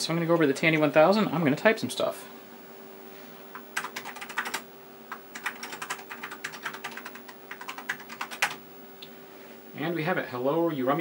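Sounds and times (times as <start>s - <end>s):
faint steady hum: 0.0s - 11.0s
keyboard typing: 3.6s - 8.6s.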